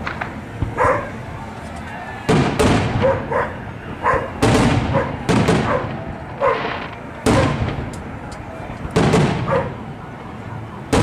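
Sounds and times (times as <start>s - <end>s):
fireworks booming: 0.0s - 11.0s
dog barking: 0.7s - 1.2s, 2.9s - 6.7s, 7.3s - 7.6s, 9.4s - 9.8s.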